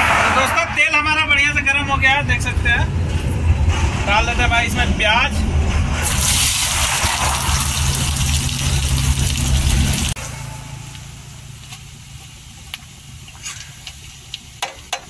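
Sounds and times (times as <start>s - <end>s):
low rumble: 0.0s - 13.8s
onions sizzling in oil: 6.0s - 10.2s.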